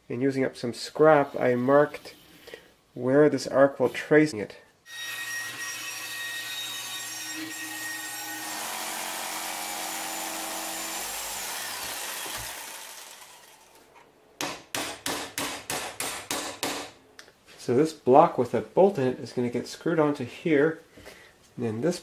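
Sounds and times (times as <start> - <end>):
bandsaw cutting plywood: 4.9 - 13.8
jigsaw cutting plywood: 8.3 - 13.8.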